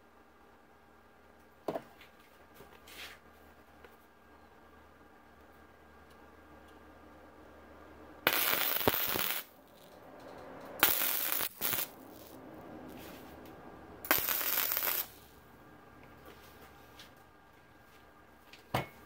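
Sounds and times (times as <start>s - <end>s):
welding arc crackling: 8.2s - 13.3s, 14.0s - 15.4s.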